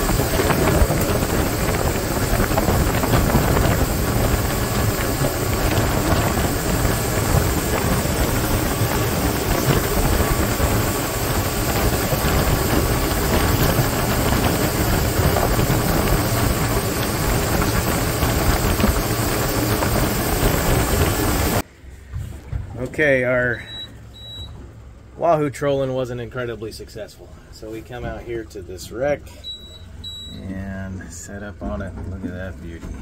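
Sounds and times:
wind and water rushing: 0:00.0 - 0:21.6
outboard motors droning: 0:00.0 - 0:33.0.

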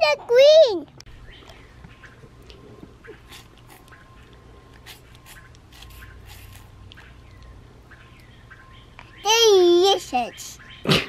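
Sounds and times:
child sucking and slurping: 0:03.1 - 0:04.0, 0:04.7 - 0:07.0.

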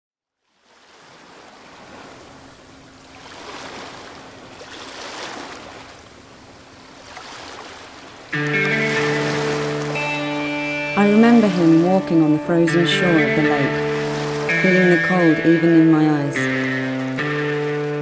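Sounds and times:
sea waves washing: 0:00.6 - 0:18.0
loud sustained music chords: 0:08.4 - 0:18.0.

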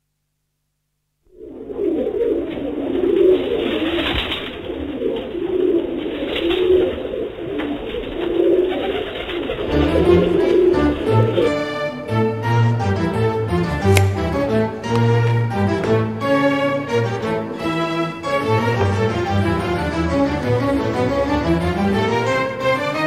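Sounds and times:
pigeons cooing: 0:01.4 - 0:11.8
bowed string music with cello: 0:09.7 - 0:23.0.

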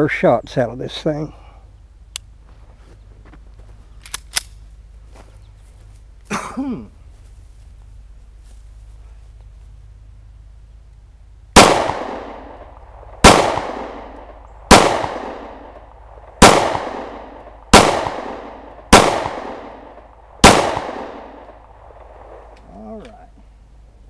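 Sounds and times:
pistol shots: 0:11.6 - 0:22.5.

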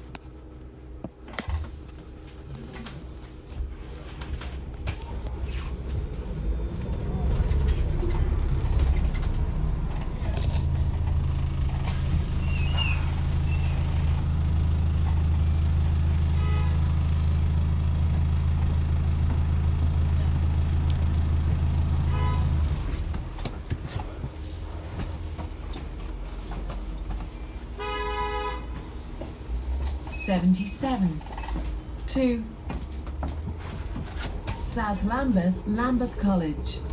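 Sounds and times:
bus diesel engine drone: 0:00.0 - 0:36.9
road and cabin rumble: 0:00.0 - 0:36.9.

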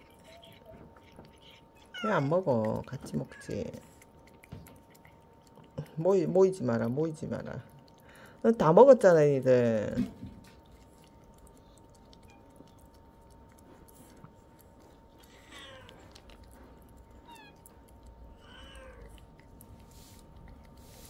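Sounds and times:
cat meowing softly: 0:00.0 - 0:02.4, 0:15.4 - 0:16.3, 0:18.3 - 0:19.2
cats licking with wet clicks: 0:00.0 - 0:21.0.

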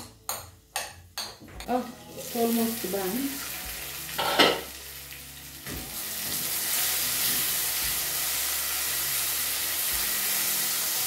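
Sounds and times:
tomatoes sizzling in a frying pan: 0:00.3 - 0:11.0.

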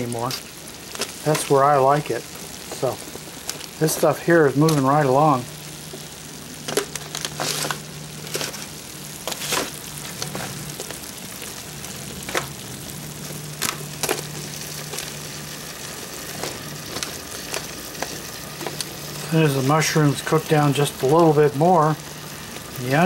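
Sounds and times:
vegetables sizzling in pan: 0:00.0 - 0:23.0
spatula scraping foil: 0:06.6 - 0:12.6.

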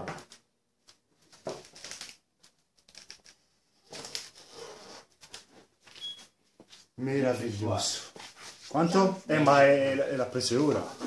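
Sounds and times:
faint rustling and handling noise: 0:00.0 - 0:11.0.

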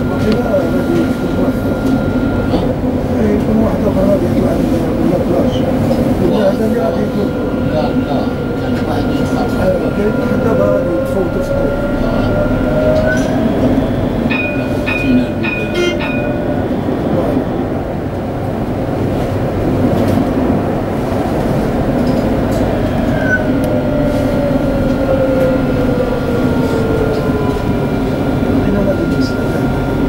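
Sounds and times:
tram motor whine: 0:00.0 - 0:30.0
tram rumbling on rails: 0:00.0 - 0:30.0.

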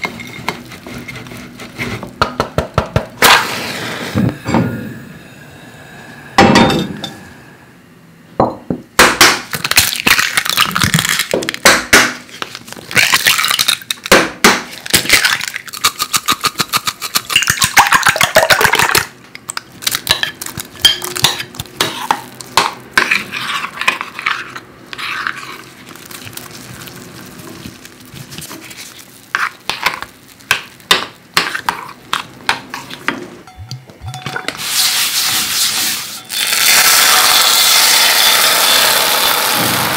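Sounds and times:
utensil clinking against glass bowl: 0:33.4 - 0:34.6.

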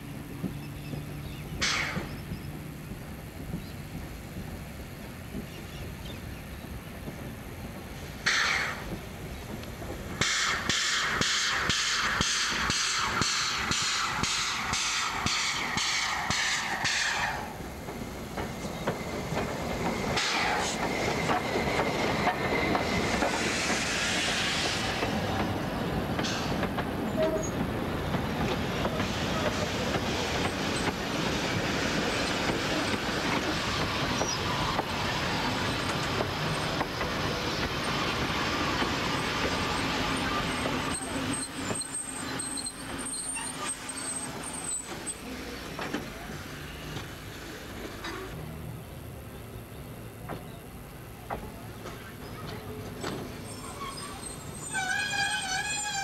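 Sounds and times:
steam locomotive exhaust beats: 0:00.0 - 0:56.0
steam hissing: 0:04.2 - 0:48.4
faint high wheel squeal: 0:27.1 - 0:27.6, 0:39.1 - 0:45.6, 0:51.5 - 0:56.0.

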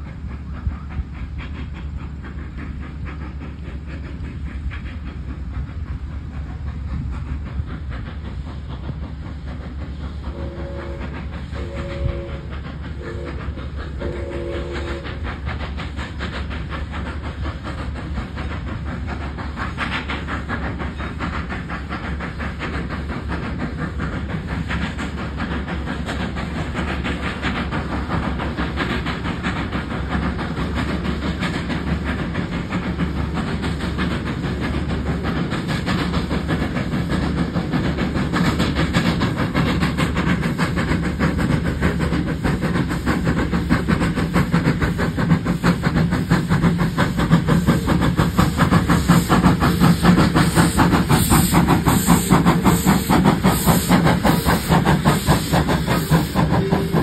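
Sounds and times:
steam locomotive chuffing: 0:00.0 - 0:57.0
two-tone steam whistle blasts: 0:10.3 - 0:15.2, 0:55.9 - 0:57.0.

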